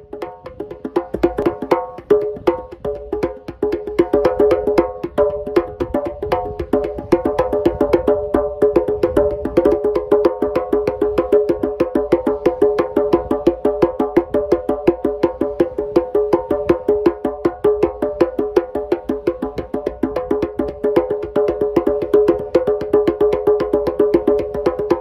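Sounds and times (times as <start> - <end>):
djembes played with hands: 0.0 - 25.0.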